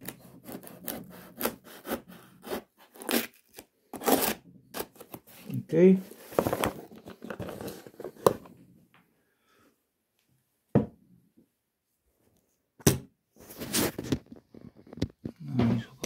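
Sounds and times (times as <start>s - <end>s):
knife cutting cardboard and tape: 0.0s - 5.4s.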